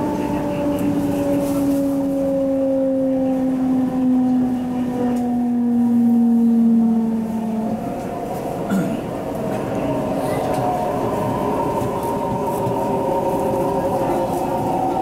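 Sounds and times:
train inverter whining: 0.0 - 15.0.

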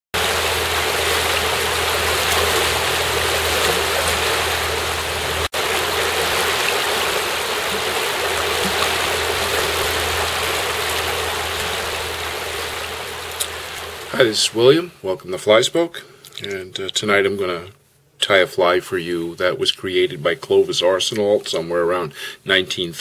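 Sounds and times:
river water rushing over riffle: 0.1 - 14.5.

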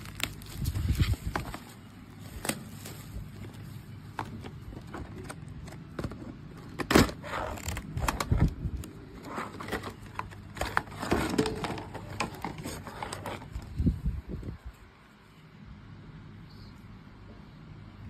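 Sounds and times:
plastic blister pack crackling: 0.0 - 5.9.

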